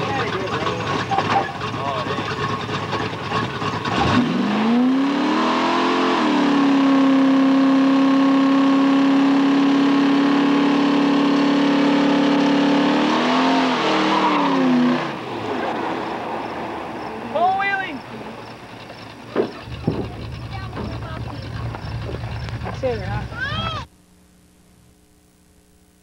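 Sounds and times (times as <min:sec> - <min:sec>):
tyres spinning: 0:00.0 - 0:05.0, 0:13.2 - 0:23.9
car engine revving: 0:00.0 - 0:23.9.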